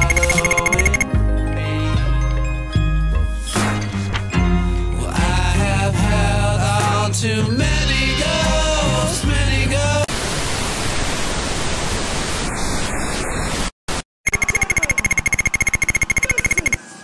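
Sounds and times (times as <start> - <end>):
rapid electronic clicks: 0.0 - 1.1, 14.3 - 16.8
steady high beep: 0.0 - 1.1, 14.3 - 16.8.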